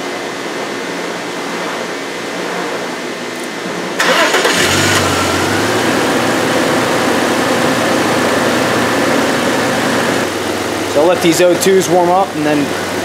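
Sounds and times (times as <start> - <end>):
car engine starting and idling: 4.0 - 10.3.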